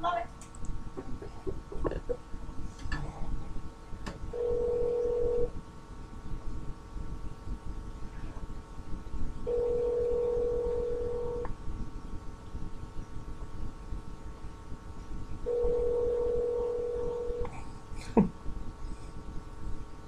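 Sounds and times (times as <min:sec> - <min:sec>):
telephone ringback tone: 0:04.4 - 0:05.5, 0:09.5 - 0:11.5, 0:15.5 - 0:17.4.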